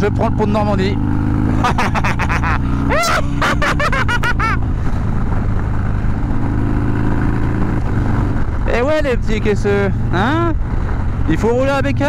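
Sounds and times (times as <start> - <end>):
motorcycle engine cruising: 0.0 - 12.0
road and wind noise: 0.0 - 12.0.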